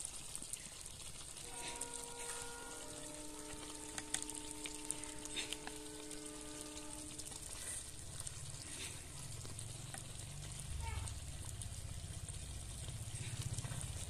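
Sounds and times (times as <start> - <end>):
steady held multi-pitch tone: 1.4 - 8.0.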